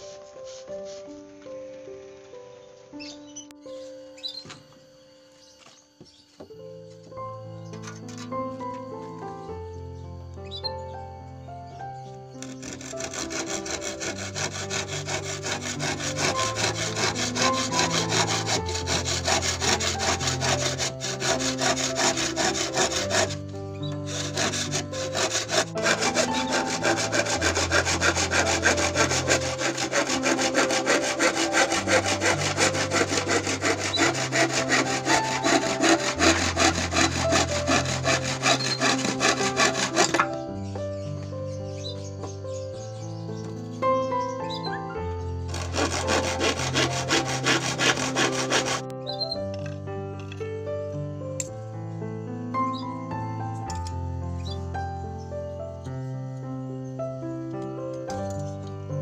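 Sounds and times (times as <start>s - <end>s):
hand saw cutting wood: 12.4s - 40.4s, 45.5s - 49.2s.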